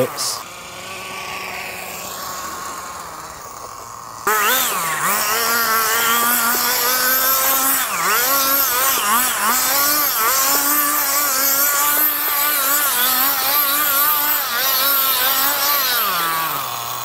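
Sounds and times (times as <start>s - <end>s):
toy car racing engine whine: 0.0s - 17.0s.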